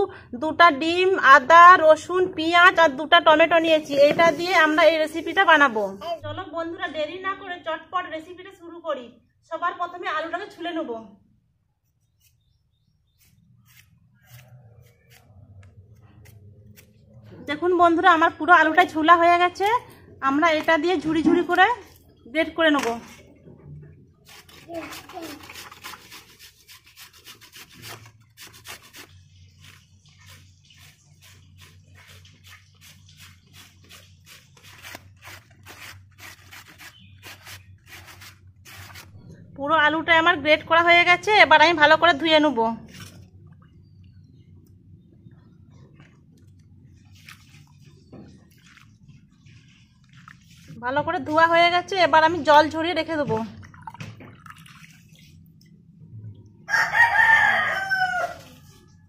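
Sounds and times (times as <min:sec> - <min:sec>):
peeler scraping potato skin: 0:13.2 - 0:15.4, 0:24.3 - 0:39.2.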